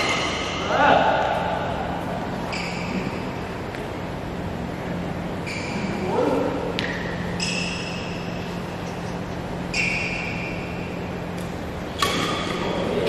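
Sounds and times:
racket hitting shuttlecock: 0:00.0 - 0:01.7, 0:11.3 - 0:13.0
shoes squeaking on a court: 0:02.3 - 0:03.9, 0:05.3 - 0:12.8.

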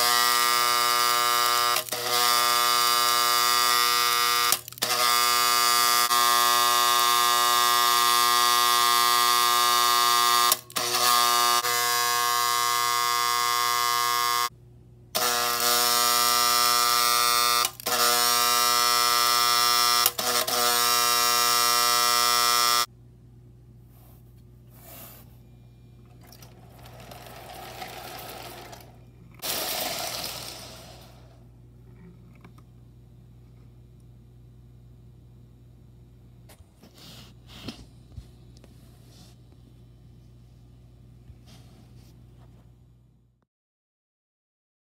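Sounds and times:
electric motor buzzing: 0:00.0 - 0:14.5, 0:15.2 - 0:22.9, 0:26.7 - 0:31.4.

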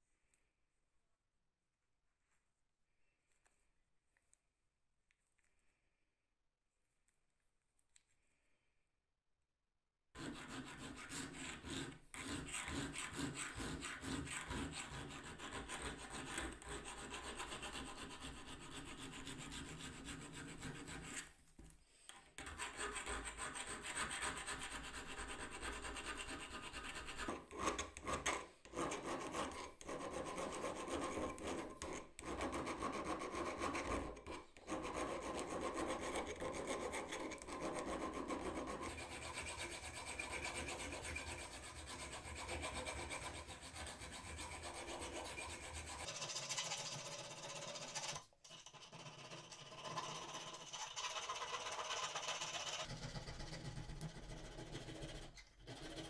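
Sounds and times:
file scraping on steel: 0:10.2 - 0:21.3, 0:22.4 - 0:56.0.

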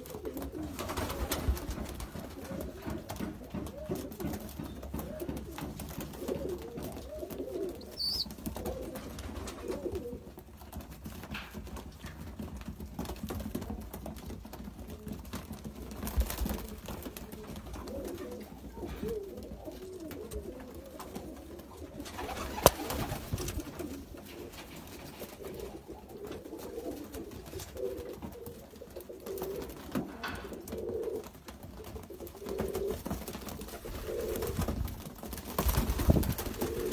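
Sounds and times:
pigeons cooing: 0:00.0 - 0:10.3, 0:17.3 - 0:34.7, 0:36.1 - 0:36.9.

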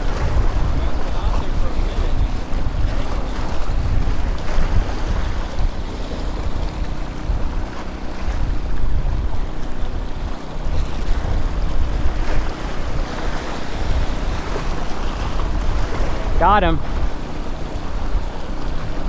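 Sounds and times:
wind buffeting microphone: 0:00.0 - 0:19.0
small waves breaking on rocks: 0:10.4 - 0:19.0.

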